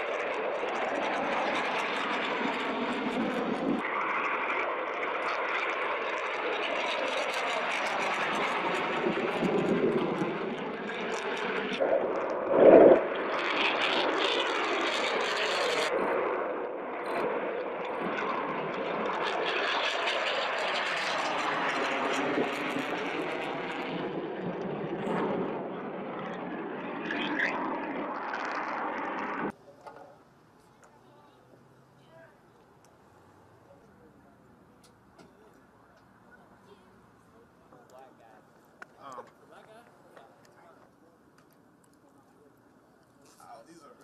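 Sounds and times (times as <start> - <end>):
jet engine roar: 0.0 - 29.6.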